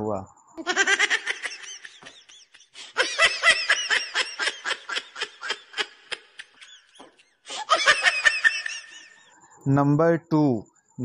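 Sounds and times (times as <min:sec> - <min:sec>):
person laughing: 0:00.6 - 0:09.3.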